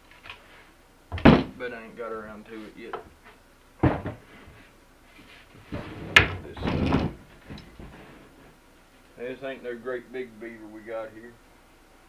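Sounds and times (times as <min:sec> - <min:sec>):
board thumping on trash can: 0:01.1 - 0:01.6, 0:03.8 - 0:04.2
board knocking and scraping: 0:03.8 - 0:04.6.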